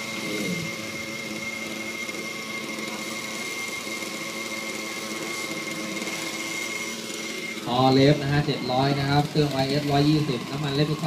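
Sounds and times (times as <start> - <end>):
model helicopter engine idling: 0.0 - 11.0.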